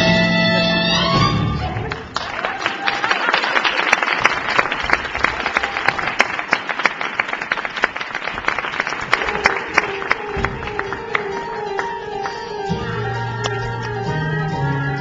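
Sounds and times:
music playing: 0.0 - 2.2, 9.0 - 15.0
audience applauding: 1.8 - 12.5.

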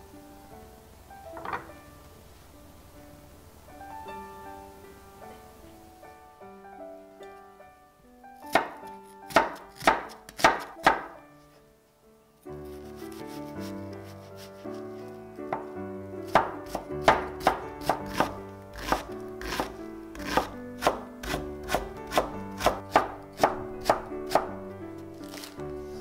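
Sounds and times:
soft background music: 0.0 - 26.0
knife chopping on wooden board: 8.5 - 11.1, 16.3 - 24.6.

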